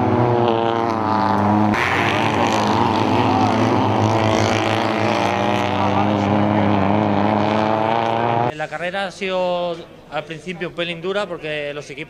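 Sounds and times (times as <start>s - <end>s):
race car engine at high revs: 0.0s - 8.5s
tyre and dirt noise: 0.0s - 8.5s.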